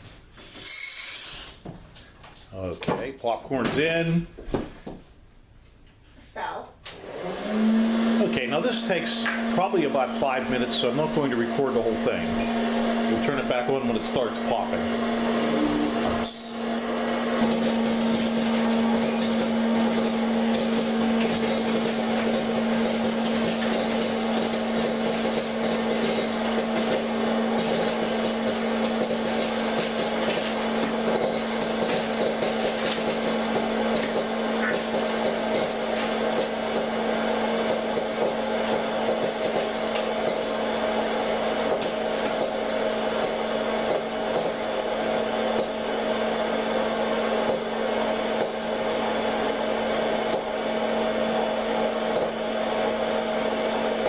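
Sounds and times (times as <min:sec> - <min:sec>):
popcorn popper blower humming: 0:06.4 - 0:54.0.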